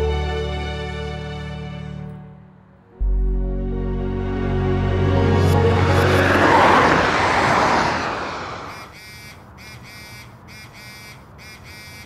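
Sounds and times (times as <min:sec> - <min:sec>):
loud rushing noise: 0:03.0 - 0:08.9.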